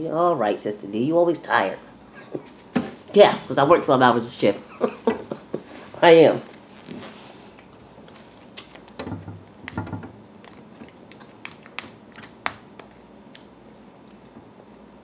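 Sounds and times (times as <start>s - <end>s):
person chewing: 10.3s - 15.0s.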